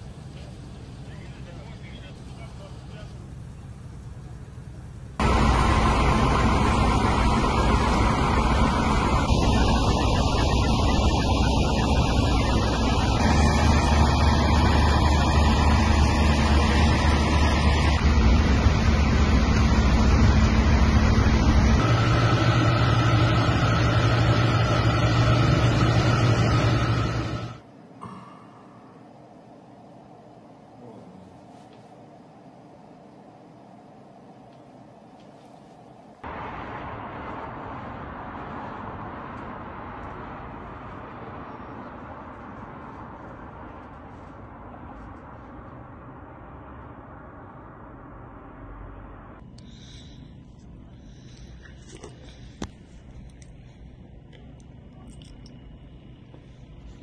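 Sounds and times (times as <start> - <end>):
city noise rushing hiss: 0.0 - 28.0, 28.6 - 54.8
fire truck engines and pumps: 0.0 - 57.0
water cannons spraying: 5.2 - 27.4.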